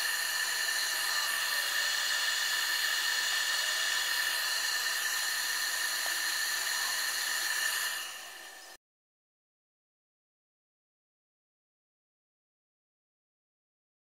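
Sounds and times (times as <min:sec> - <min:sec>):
wood lathe motor whine: 0:00.0 - 0:08.8.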